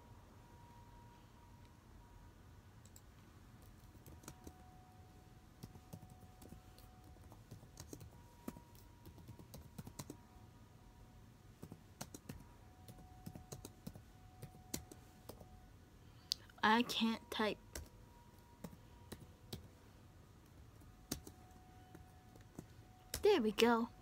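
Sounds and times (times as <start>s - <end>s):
keyboard typing: 2.8s - 4.7s, 5.6s - 10.2s, 11.6s - 15.5s, 17.7s - 19.8s, 20.4s - 23.8s.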